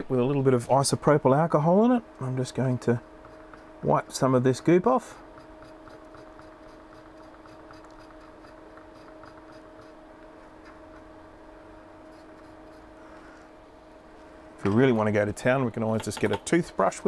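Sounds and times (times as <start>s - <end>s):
low electrical hum: 0.0s - 17.0s
cotton swab rubbing circuit board: 5.1s - 10.1s, 12.0s - 13.0s.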